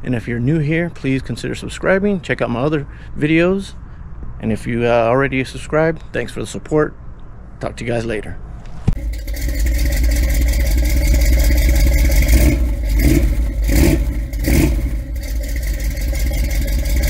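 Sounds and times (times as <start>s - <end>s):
car engine running: 8.9s - 17.0s.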